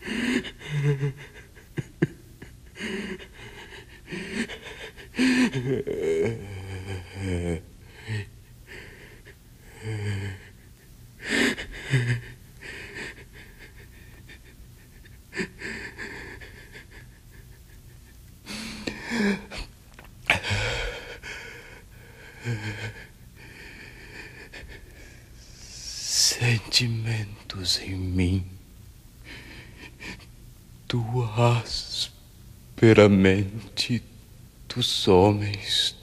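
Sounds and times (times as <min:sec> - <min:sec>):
person reciting poetry: 0:25.8 - 0:28.6, 0:30.9 - 0:32.2, 0:32.8 - 0:34.1, 0:34.7 - 0:36.0.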